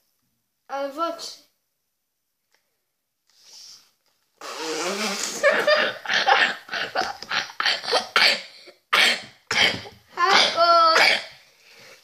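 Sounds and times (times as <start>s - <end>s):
boys laughing: 5.4s - 8.2s.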